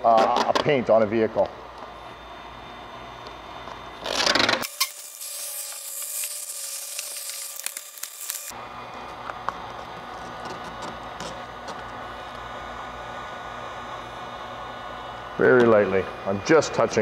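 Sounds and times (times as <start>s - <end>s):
vinyl film tearing away: 4.0s - 8.5s.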